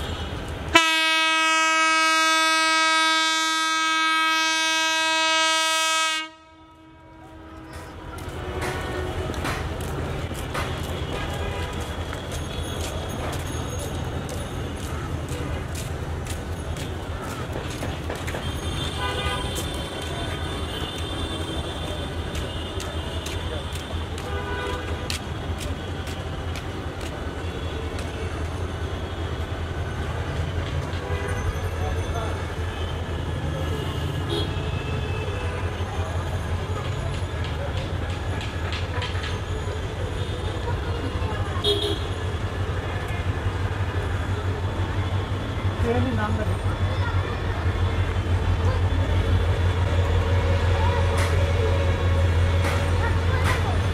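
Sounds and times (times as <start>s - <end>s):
locomotive air horn blast: 0.7s - 9.3s, 18.8s - 22.9s.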